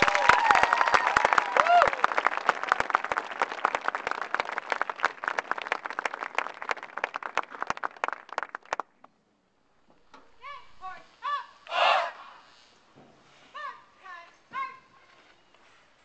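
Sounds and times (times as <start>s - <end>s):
audience applauding: 0.0s - 9.1s.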